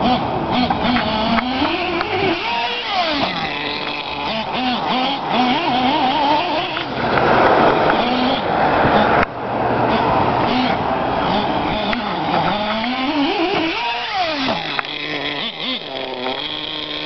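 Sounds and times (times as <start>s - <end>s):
rc car engine revving: 0.0s - 17.0s
loud rushing noise: 6.9s - 11.8s.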